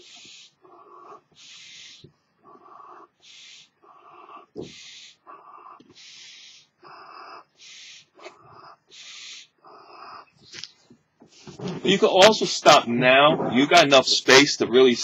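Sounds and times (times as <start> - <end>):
puffs blown into balloon: 0.0 - 0.6, 5.9 - 6.7.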